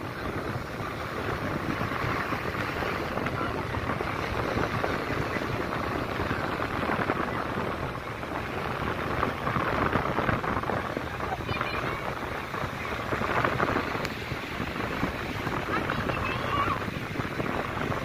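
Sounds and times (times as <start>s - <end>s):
faint voices: 0.0s - 18.0s
surf breaking: 0.0s - 18.0s
wind rumbling on microphone: 0.0s - 18.0s.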